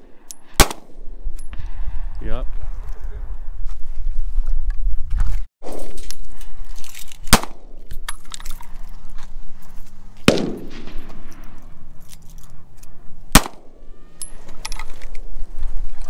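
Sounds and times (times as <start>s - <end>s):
handgun shots with echo: 7.3s - 7.7s, 10.3s - 11.2s, 13.3s - 13.8s.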